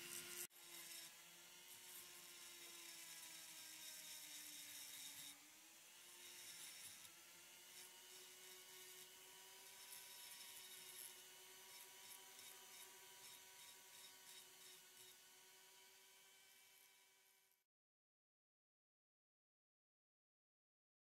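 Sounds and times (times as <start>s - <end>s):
rotary tool grinding stone: 0.0s - 17.6s.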